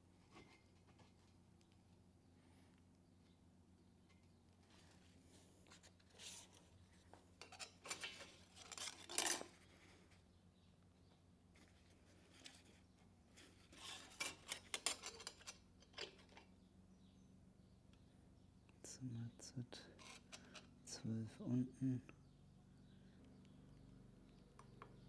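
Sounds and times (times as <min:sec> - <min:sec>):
metal clinks and scrapes: 0:07.4 - 0:09.6, 0:13.7 - 0:16.3.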